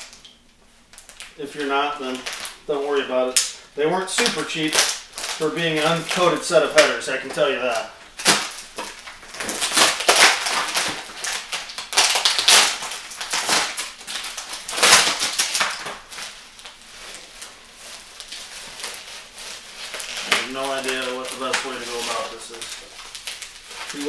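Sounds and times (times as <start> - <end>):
plastic wrap crinkling and tearing: 0.0 - 24.0
knife cutting plastic: 4.2 - 24.0.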